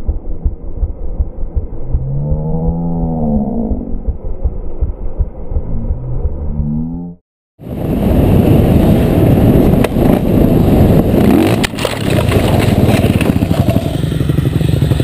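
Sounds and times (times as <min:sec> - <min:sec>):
dirt bike engine running hard: 0:07.7 - 0:15.0.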